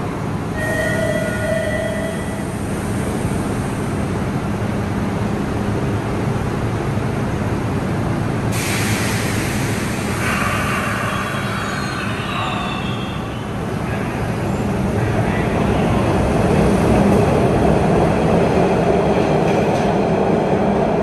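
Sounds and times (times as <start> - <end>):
subway train humming: 0.0 - 21.0
loud hiss: 8.5 - 13.0.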